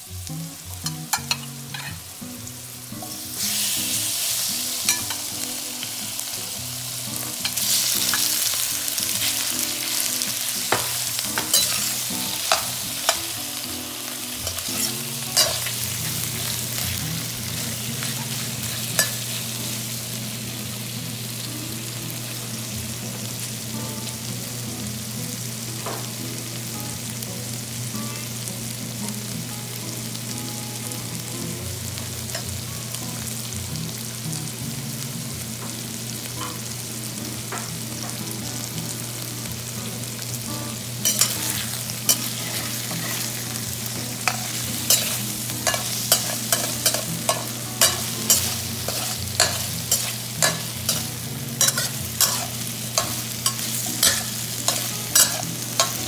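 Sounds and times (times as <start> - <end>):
food sizzling in oil: 0.0 - 56.0
metal spatula scraping a pan: 14.4 - 15.8, 41.0 - 43.4, 44.2 - 56.0.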